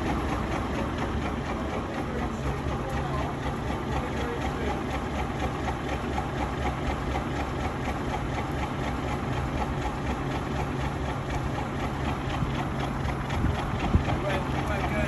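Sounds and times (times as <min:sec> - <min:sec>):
heavy engine idling: 0:00.0 - 0:15.0.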